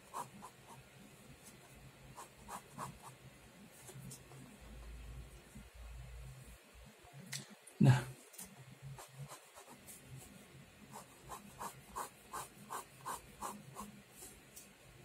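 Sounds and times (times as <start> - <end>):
pen sketching on paper: 0.0 - 0.8, 2.1 - 3.2, 8.9 - 14.4.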